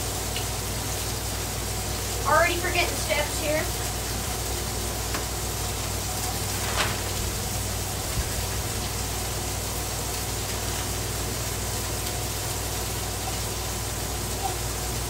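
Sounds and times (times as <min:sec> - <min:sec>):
food sizzling on a griddle: 0:00.0 - 0:15.0.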